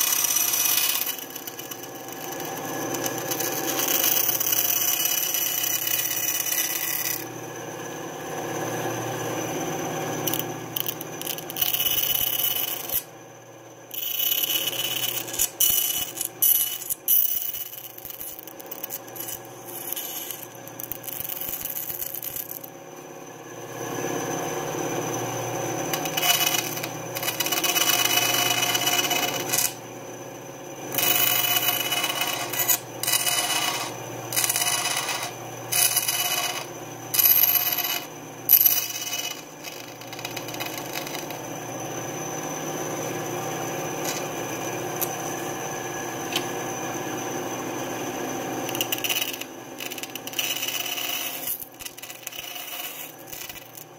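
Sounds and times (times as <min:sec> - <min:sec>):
bandsaw cutting plywood: 0:00.0 - 0:07.3, 0:25.9 - 0:29.8, 0:30.9 - 0:41.4.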